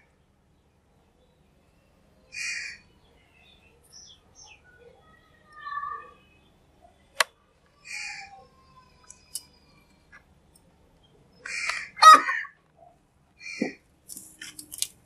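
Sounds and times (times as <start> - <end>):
crows cawing: 2.3 - 2.9, 11.4 - 12.6.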